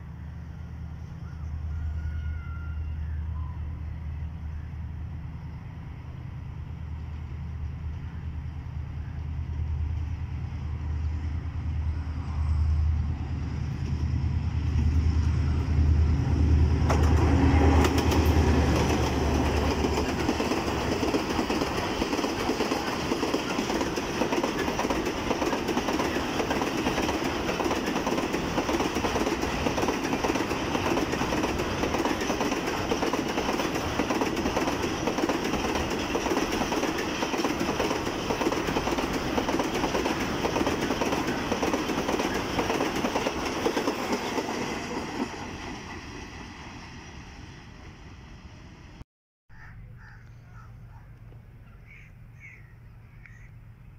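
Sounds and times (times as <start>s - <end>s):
diesel locomotive engine passing: 0.0s - 49.0s
train wheels clattering on rails: 16.7s - 47.2s.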